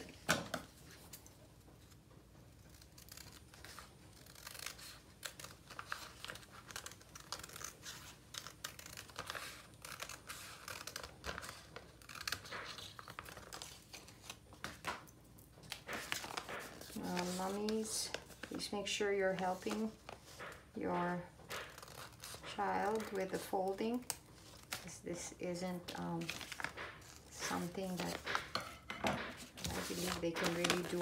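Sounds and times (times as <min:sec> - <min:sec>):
scissors snipping paper: 0:02.6 - 0:14.9, 0:15.7 - 0:18.7, 0:19.3 - 0:25.0, 0:29.6 - 0:31.0
paper rustling: 0:02.8 - 0:24.9, 0:25.7 - 0:31.0.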